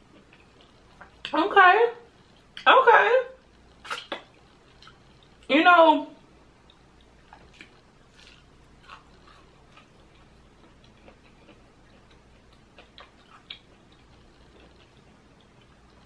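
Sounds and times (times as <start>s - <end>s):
soft chewing mouth smacks: 0.1s - 1.3s, 3.4s - 5.5s, 6.6s - 16.0s.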